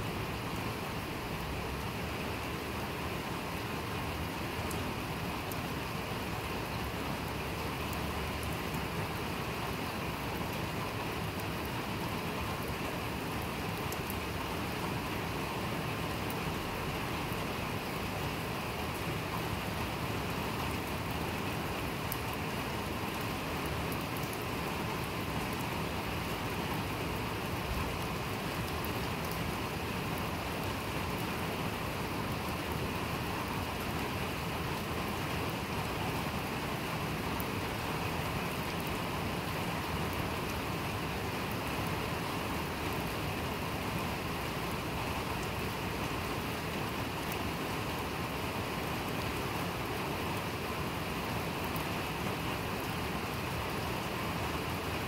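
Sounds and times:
steady rain hiss: 0:00.0 - 0:55.0
faint raindrop ticks: 0:04.6 - 0:05.7, 0:06.7 - 0:09.3, 0:10.1 - 0:17.5, 0:18.1 - 0:31.5, 0:46.7 - 0:47.5.

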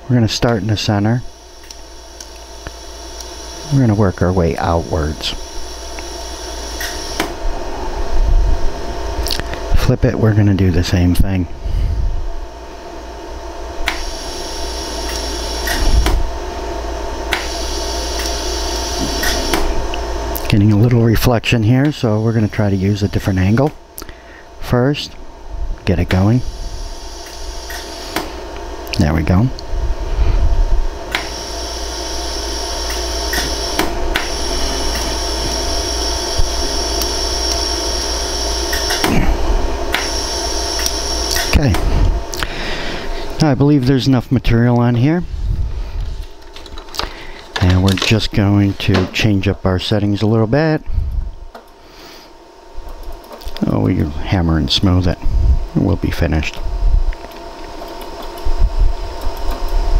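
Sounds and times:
steady hum: 0:00.0 - 0:59.9
laser welder snaps: 0:01.6 - 0:03.4, 0:06.8 - 0:07.4, 0:13.8 - 0:14.4, 0:15.0 - 0:16.3, 0:17.3 - 0:20.5, 0:27.2 - 0:29.0, 0:31.1 - 0:32.2, 0:32.8 - 0:38.1, 0:38.7 - 0:39.3, 0:39.9 - 0:42.5.

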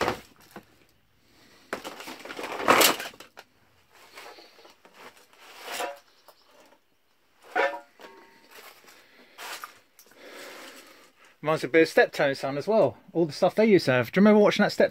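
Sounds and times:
objects scraping and knocking: 0:01.6 - 0:06.8, 0:07.4 - 0:09.8.

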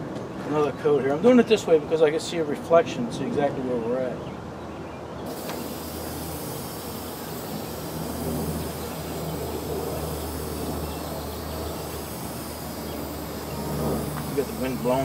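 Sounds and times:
aerosol spray can hissing: 0:05.3 - 0:15.0.

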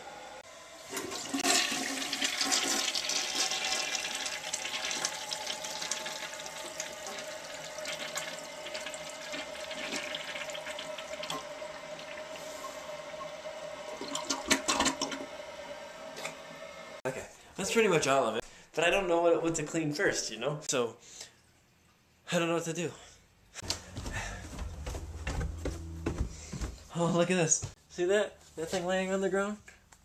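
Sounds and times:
toilet flushing: 0:00.0 - 0:17.0
steady tone: 0:23.7 - 0:26.7.

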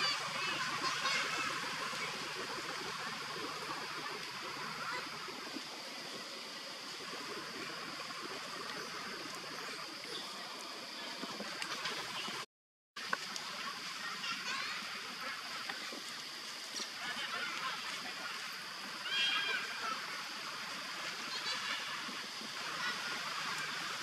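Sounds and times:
outdoor background hiss: 0:00.0 - 0:12.4, 0:13.0 - 0:24.0.

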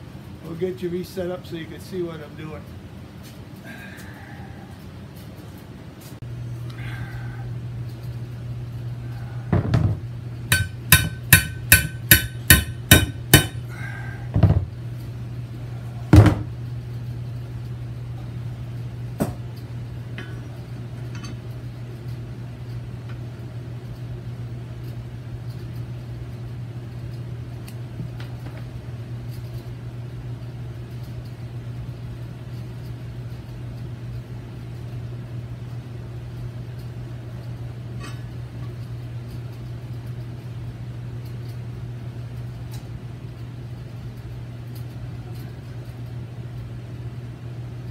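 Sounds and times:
steady low hum: 0:00.0 - 0:47.9
hammer striking steel: 0:10.5 - 0:13.7.

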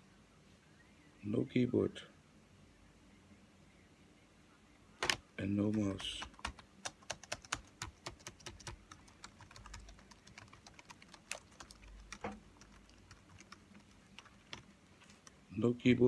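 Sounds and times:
laptop keyboard keys clicking: 0:05.8 - 0:15.4.

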